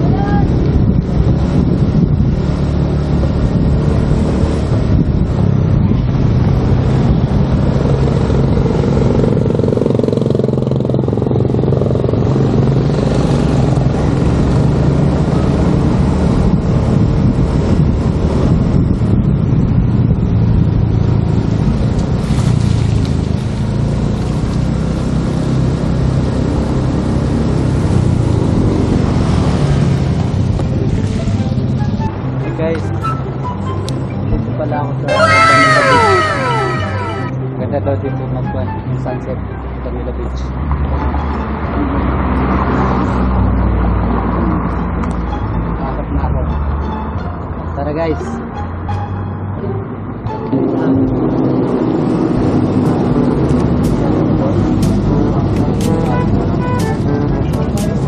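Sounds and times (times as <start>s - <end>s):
wind and road noise: 0.0s - 58.0s
scooter engine droning: 35.1s - 37.4s.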